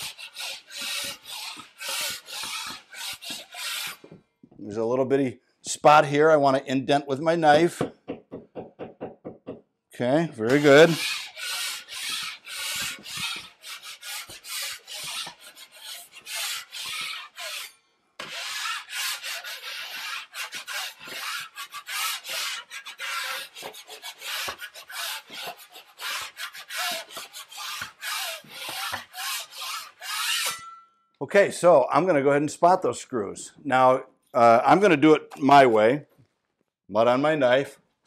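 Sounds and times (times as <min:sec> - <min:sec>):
taping knife scraping screw heads: 0:00.0 - 0:04.2, 0:10.4 - 0:30.8.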